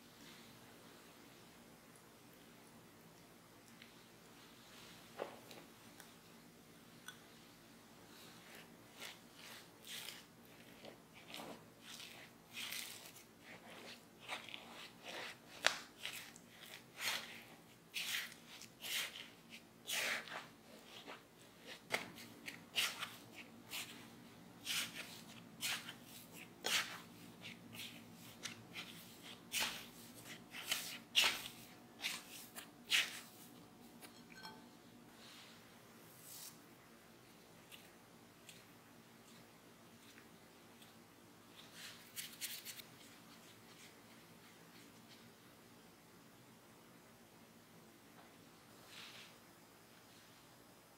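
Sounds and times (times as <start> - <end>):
spatula scraping and squishing: 8.3 - 34.6.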